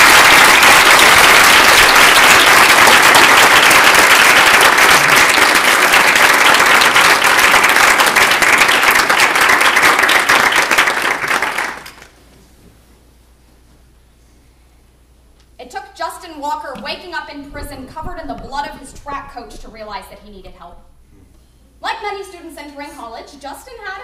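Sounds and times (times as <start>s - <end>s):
audience applauding: 0.0s - 12.2s
hands clapping close by: 0.0s - 12.2s.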